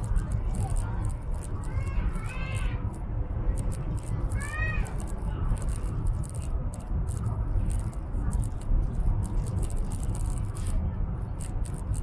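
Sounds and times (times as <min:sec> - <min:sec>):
light ticks and rattles: 0:00.0 - 0:12.0
train cabin low rumble: 0:00.0 - 0:12.0.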